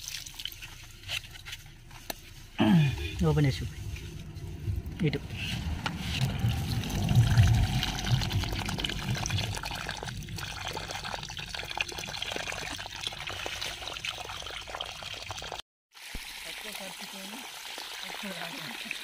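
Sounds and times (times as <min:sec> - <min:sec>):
water pouring into puddle: 0:00.0 - 0:00.7, 0:05.5 - 0:19.0.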